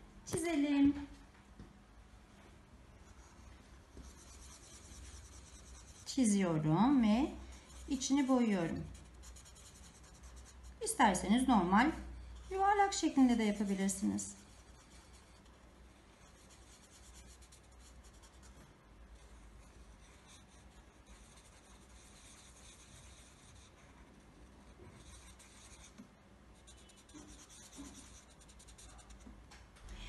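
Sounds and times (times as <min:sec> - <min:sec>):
marker scribbling on paper: 0:04.0 - 0:11.7, 0:16.2 - 0:18.6, 0:19.2 - 0:26.0, 0:26.6 - 0:29.2.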